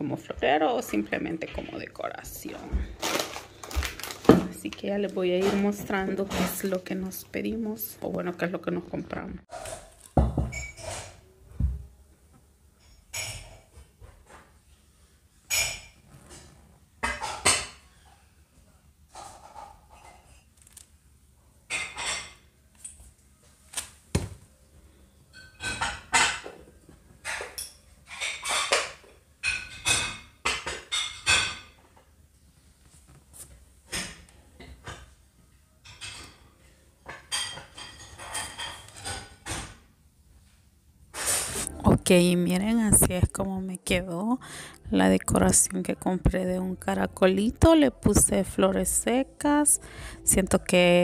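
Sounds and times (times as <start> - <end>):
objects knocking on tabletop: 10.2 - 10.6.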